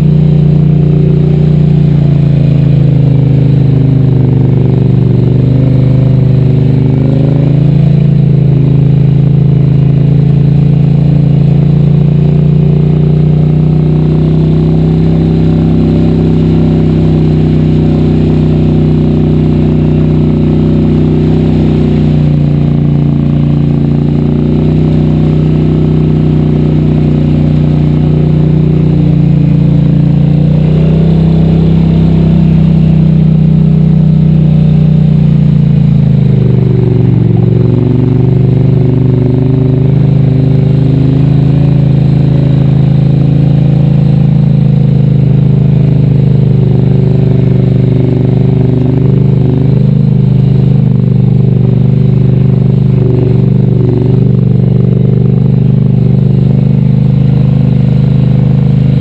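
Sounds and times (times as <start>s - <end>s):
atv engine running: 0.0s - 59.0s.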